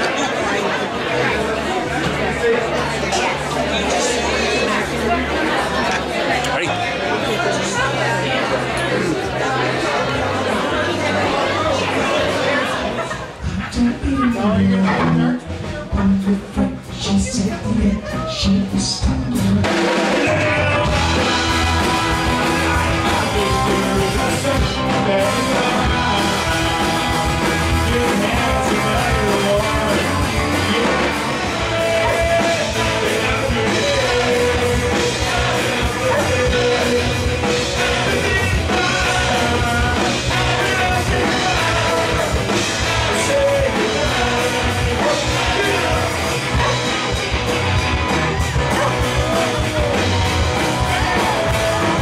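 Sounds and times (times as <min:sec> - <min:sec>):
live rock band playing: 0:00.0 - 0:52.0
man singing: 0:13.4 - 0:47.3, 0:48.7 - 0:52.0.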